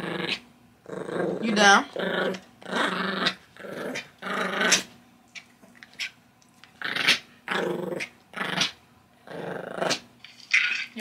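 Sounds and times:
puppy growling: 0.0s - 10.1s.

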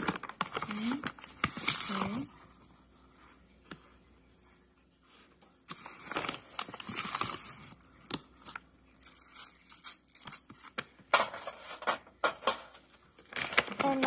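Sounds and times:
plastic bag crinkling: 0.0s - 2.4s, 5.7s - 10.6s, 13.2s - 14.0s.

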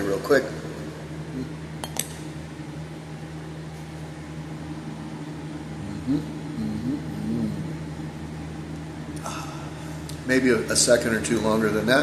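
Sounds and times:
low machine hum: 0.0s - 12.0s
man humming closed-mouth: 1.3s - 1.7s, 5.8s - 8.0s.

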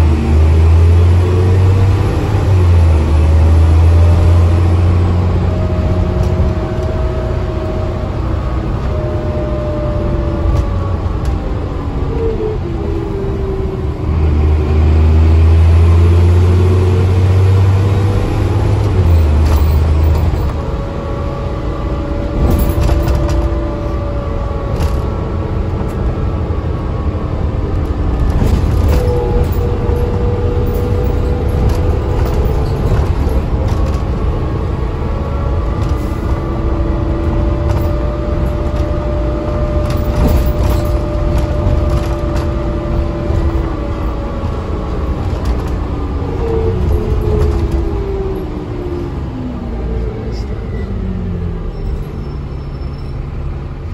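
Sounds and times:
bus diesel engine droning: 0.0s - 53.9s
bus body rattles: 17.6s - 48.8s.

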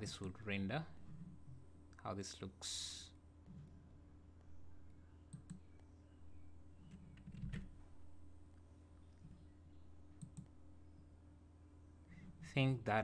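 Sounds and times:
steady low hum: 0.0s - 13.0s
computer mouse clicks: 5.3s - 5.8s, 10.2s - 10.6s.

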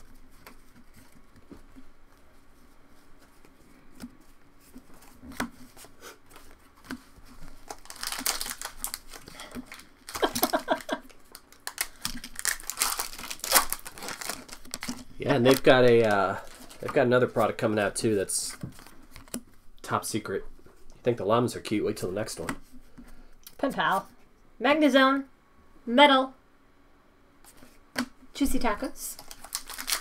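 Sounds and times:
foil wrappers crinkling: 4.6s - 19.4s, 28.7s - 30.0s.

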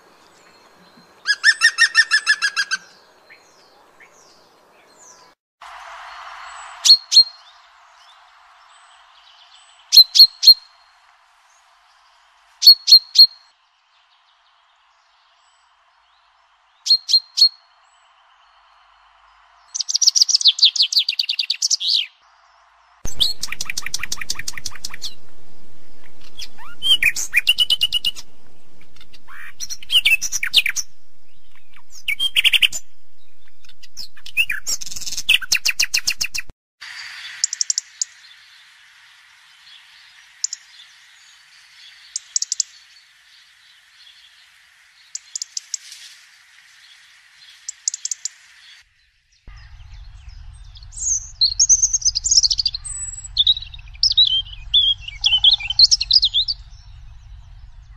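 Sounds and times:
bird trilling: 1.3s - 2.9s, 23.1s - 36.4s, 49.5s - 57.9s
steady hiss: 5.6s - 10.0s, 22.3s - 48.9s
high bird chirps: 6.1s - 8.2s, 16.8s - 17.7s, 23.0s - 38.4s, 47.4s - 57.9s
low hum: 23.1s - 36.5s, 49.5s - 57.9s.

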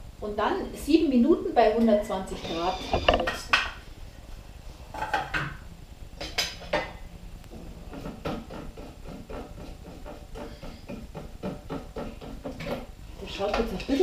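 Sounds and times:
spatula scraping metal bowl: 2.3s - 3.5s.

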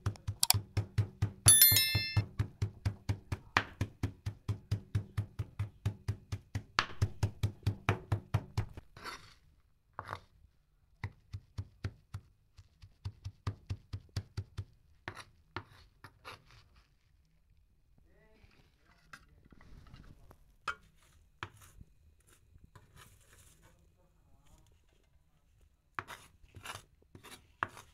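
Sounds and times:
knife chopping on plastic board: 2.4s - 8.9s, 11.0s - 15.8s
knife scraping greens together: 8.9s - 10.3s, 15.1s - 17.1s, 20.8s - 23.8s, 26.0s - 27.9s.

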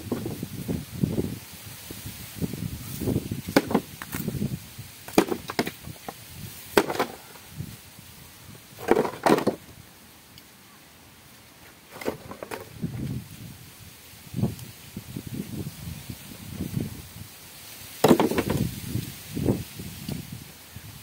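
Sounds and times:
broken pieces crunching and scraping: 3.4s - 4.3s, 5.1s - 7.4s, 8.8s - 9.6s, 11.9s - 12.8s, 18.0s - 18.7s.

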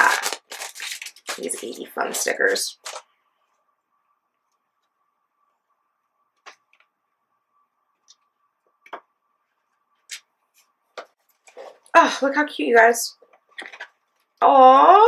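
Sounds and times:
faint steady tone: 3.0s - 11.4s.

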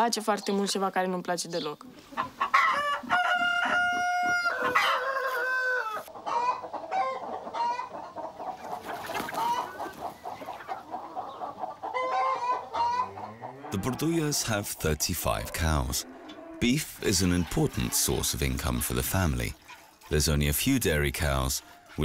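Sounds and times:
hens clucking: 0.4s - 22.0s
rooster crowing: 2.6s - 7.8s, 12.0s - 13.8s.

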